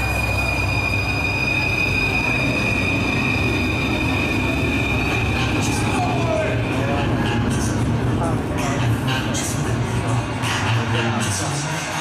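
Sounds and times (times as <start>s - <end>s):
high-pitched squeal: 0.0s - 7.8s
crowd noise: 0.0s - 12.0s.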